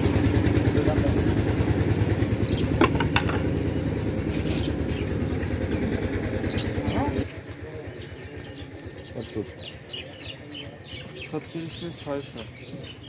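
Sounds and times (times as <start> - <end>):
small engine running: 0.0 - 9.7.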